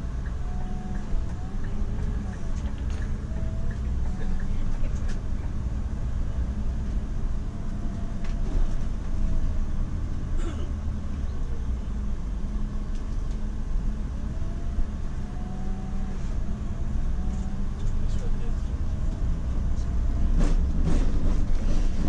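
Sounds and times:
bus engine and road rumble: 0.0s - 22.0s.

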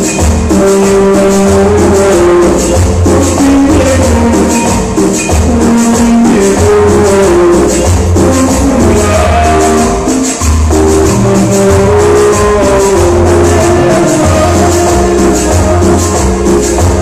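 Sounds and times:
loud dance music: 0.0s - 17.0s
quick percussion: 0.0s - 17.0s
steady bass line: 0.0s - 17.0s.

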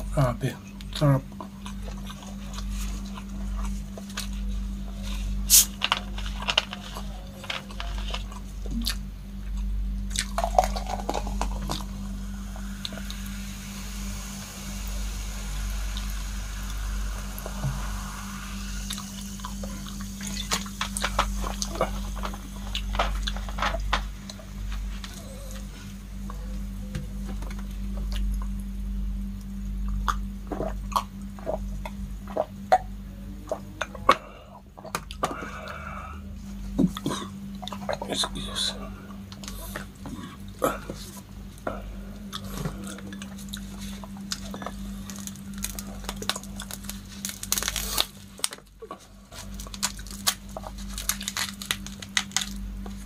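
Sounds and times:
person gulping and swallowing: 8.6s - 9.0s, 29.8s - 32.9s, 33.5s - 38.1s
soft drink pouring and fizzing: 10.2s - 23.1s
sharp clicks and crackles: 44.3s - 48.7s, 49.4s - 53.0s.

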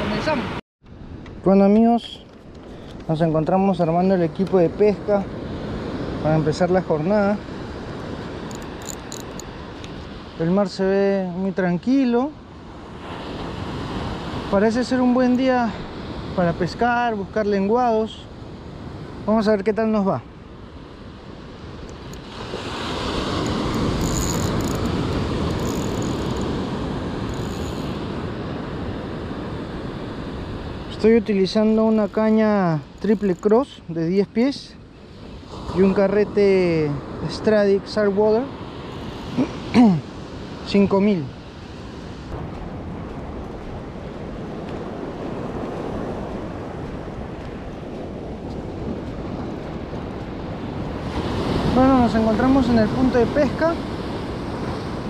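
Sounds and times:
ocean surf breaking: 0.0s - 55.0s
wind: 0.0s - 55.0s
surf: 33.7s - 55.0s.

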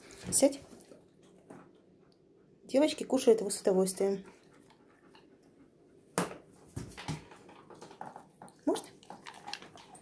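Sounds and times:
dogs crunching kibble: 7.0s - 10.0s.

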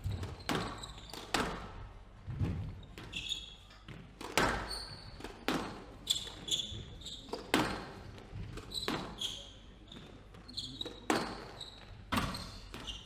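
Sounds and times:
shoes squeaking on wooden floor: 0.0s - 1.7s, 2.3s - 13.0s
squash ball cracking off rackets: 3.9s - 5.9s.

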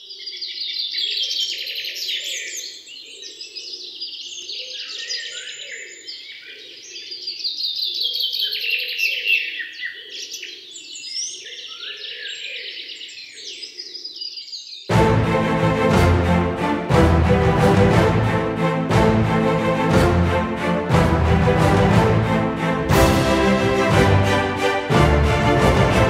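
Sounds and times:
songbirds chirping and trilling: 0.0s - 14.9s.

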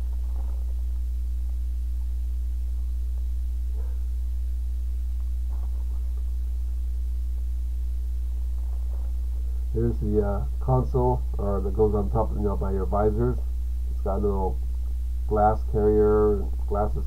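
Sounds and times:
plastic bag rustling: 0.0s - 1.1s, 5.5s - 6.4s, 8.3s - 9.8s
faint steady tone: 0.0s - 17.0s
low electrical hum: 0.0s - 17.0s.

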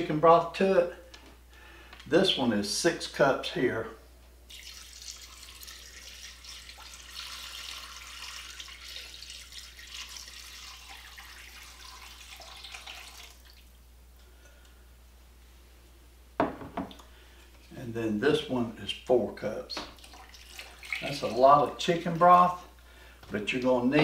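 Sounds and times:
broth pouring into a pot: 4.5s - 13.6s, 20.0s - 21.4s.

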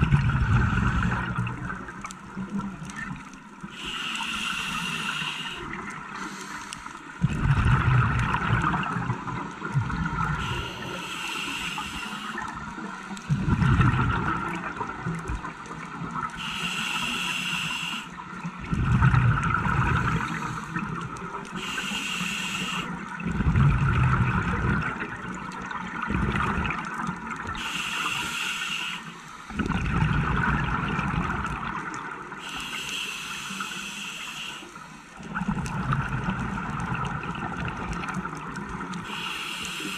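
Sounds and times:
exhaled air bubbling: 0.0s - 39.9s
regulator hiss on inhale: 3.6s - 7.2s, 10.3s - 13.2s, 16.4s - 18.4s, 19.9s - 23.2s, 27.6s - 29.6s, 32.4s - 35.2s, 39.0s - 39.9s.

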